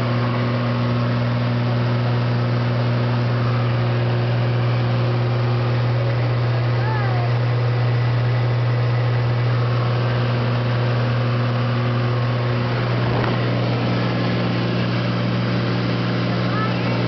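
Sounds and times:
airplane engine and propeller droning: 0.0 - 17.0.

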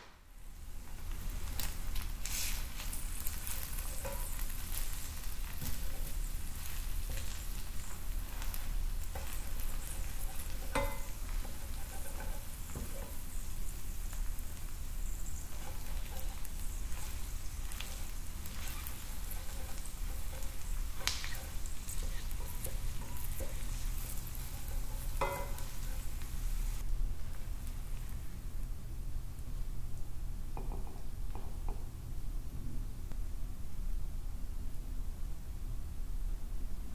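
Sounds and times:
food sizzling in a pan: 0.3 - 28.6.

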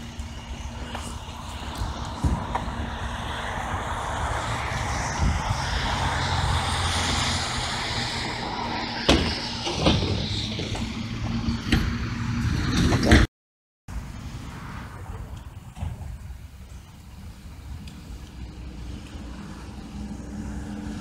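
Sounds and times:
car driving past: 0.0 - 12.9.

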